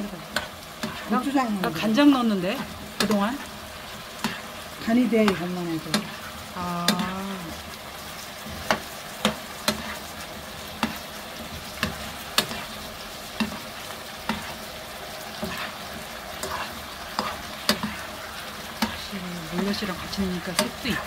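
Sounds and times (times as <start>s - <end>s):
food sizzling in a frying pan: 0.0s - 21.0s
spoon knocking against pan: 8.5s - 10.0s, 11.8s - 12.6s, 13.4s - 13.6s.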